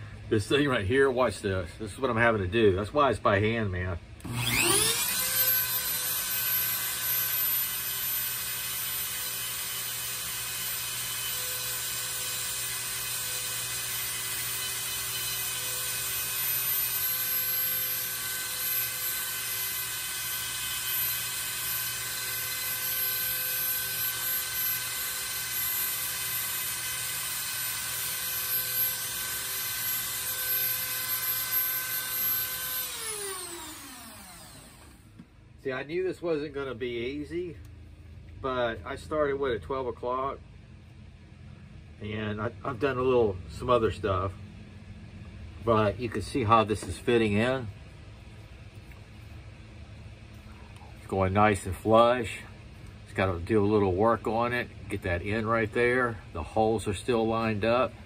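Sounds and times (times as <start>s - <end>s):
rotary tool whining: 4.2s - 35.2s.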